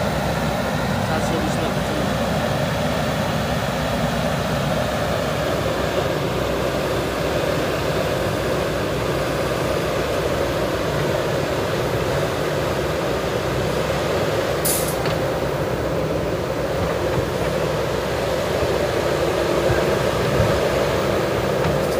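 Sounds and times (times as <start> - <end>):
diesel engines running: 0.0 - 21.9
brief hiss: 14.6 - 15.0.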